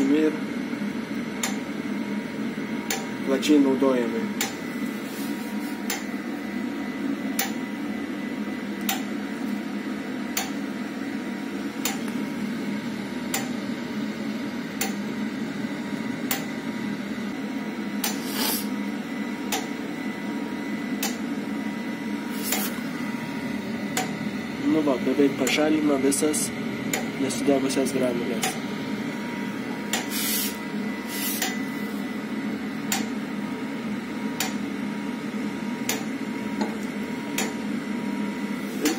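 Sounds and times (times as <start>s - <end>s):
fan blowing with faint whine: 0.0s - 38.9s
sharp click: 1.4s - 1.6s, 2.9s - 3.1s, 4.4s - 4.6s, 7.4s - 7.6s, 10.4s - 10.6s, 11.8s - 12.2s, 28.4s - 28.6s, 34.4s - 34.6s, 35.9s - 36.1s.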